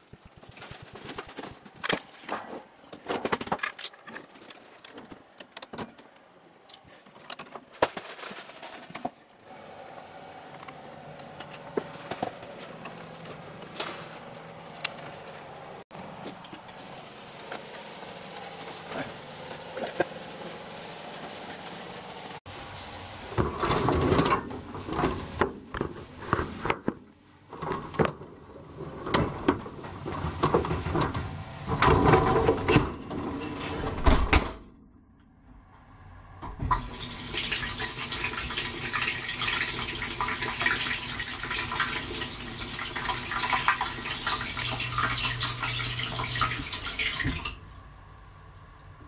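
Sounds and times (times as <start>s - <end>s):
dishwasher water spray hissing: 16.1s - 25.4s, 36.7s - 47.6s
dishwasher rack and door rattling: 23.3s - 25.6s, 27.5s - 34.6s.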